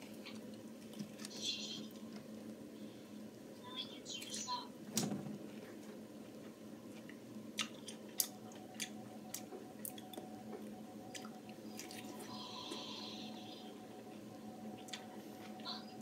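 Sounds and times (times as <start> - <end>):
person chewing juicy fruit: 6.9 - 16.0.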